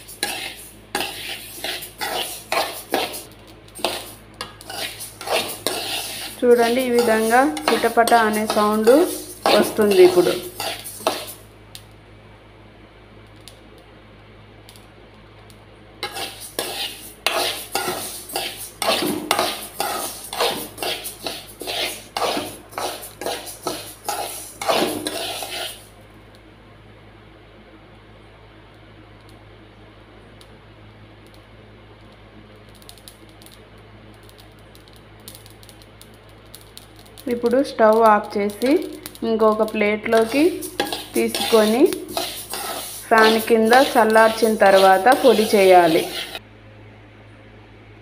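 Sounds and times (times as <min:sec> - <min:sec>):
metal spoon scraping a pan: 0:00.0 - 0:11.4, 0:16.0 - 0:25.9, 0:37.3 - 0:46.4
seeds crackling in a pan: 0:00.0 - 0:12.0, 0:13.2 - 0:13.9, 0:14.6 - 0:26.4, 0:31.2 - 0:46.4
steady low hum: 0:00.0 - 0:48.0.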